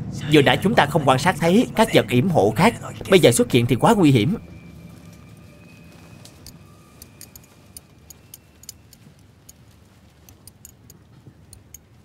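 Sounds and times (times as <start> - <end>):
abacus beads clicking: 6.4 - 11.9.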